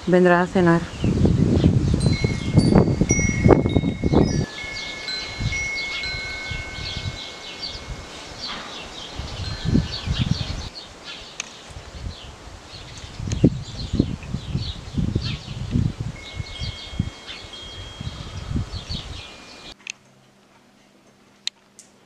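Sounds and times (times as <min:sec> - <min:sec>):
metal wind chime ringing: 0:02.0 - 0:10.7, 0:16.1 - 0:19.8.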